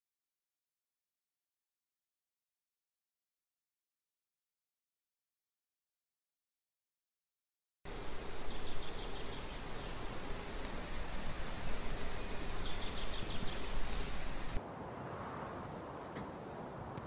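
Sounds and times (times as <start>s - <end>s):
steady noisy hiss: 7.9s - 15.0s.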